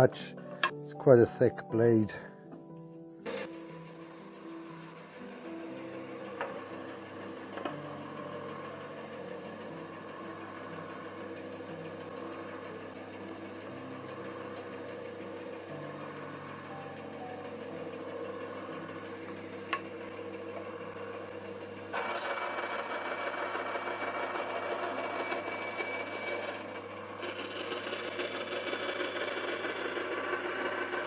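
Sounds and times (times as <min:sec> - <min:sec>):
faint background music: 0:00.0 - 0:04.0
band saw cutting wood: 0:03.2 - 0:31.0.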